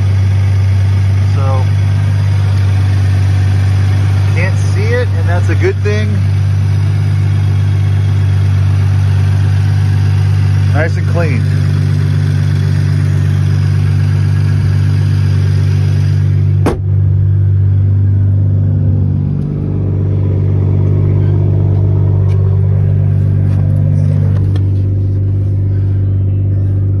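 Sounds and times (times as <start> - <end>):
car engine idling: 0.0 - 27.0
sharp thump: 16.6 - 17.0.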